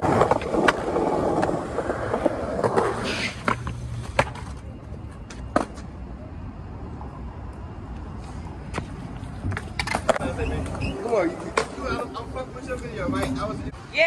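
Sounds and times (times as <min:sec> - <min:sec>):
skateboard clacking on ground: 0:00.0 - 0:06.0, 0:08.6 - 0:13.5
skateboard wheels rolling on concrete: 0:00.0 - 0:14.0.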